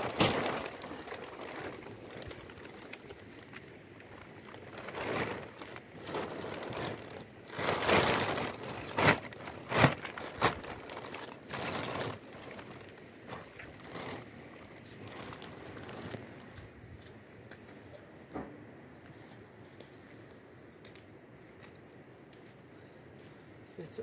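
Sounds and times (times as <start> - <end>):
crinkling and rustling: 0.0 - 24.0.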